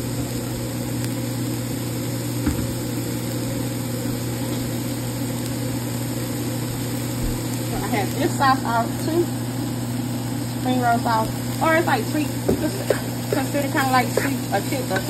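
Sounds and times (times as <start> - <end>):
electric motor hum: 0.0 - 15.0.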